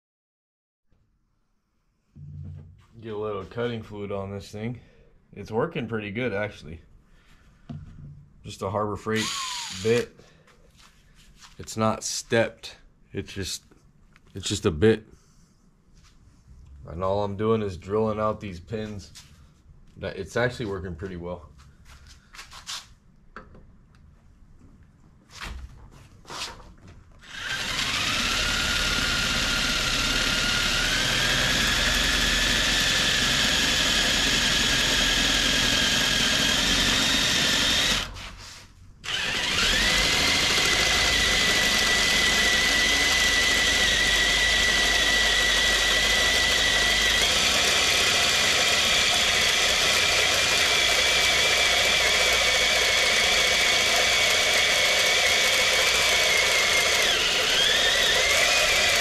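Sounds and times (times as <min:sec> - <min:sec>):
power drill whining: 0:09.1 - 0:10.1, 0:27.2 - 0:38.3, 0:39.0 - 0:59.0.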